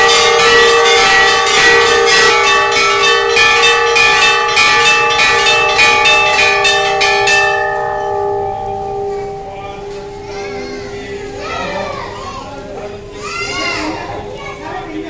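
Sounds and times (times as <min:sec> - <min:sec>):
bells rung rapidly: 0:00.0 - 0:12.0.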